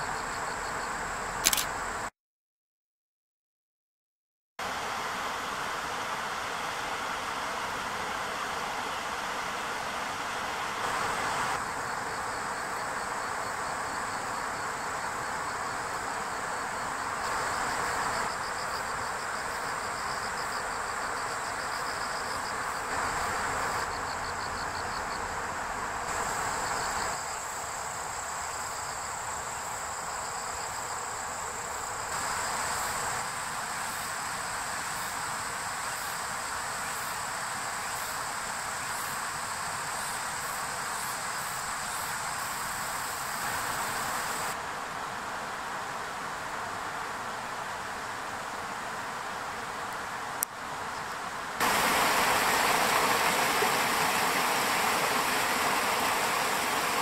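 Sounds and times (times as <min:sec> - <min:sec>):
insects trilling: 0:00.0 - 0:02.0, 0:11.6 - 0:44.6, 0:50.8 - 0:57.0.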